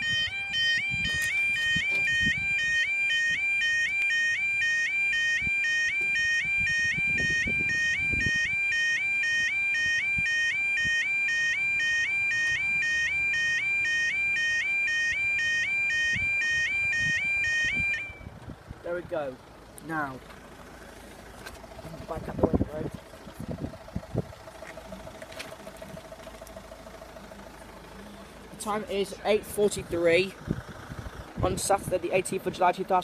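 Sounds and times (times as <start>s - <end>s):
level crossing two-tone alarm: 0.0s - 18.3s.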